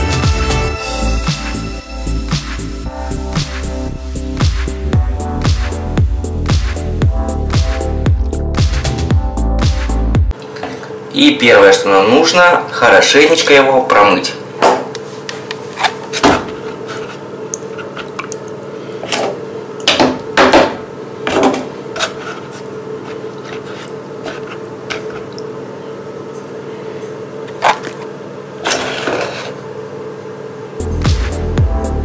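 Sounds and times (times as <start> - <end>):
steady hum: 0.0 - 12.2
water sloshing in plastic cup: 15.6 - 19.4, 27.5 - 28.1.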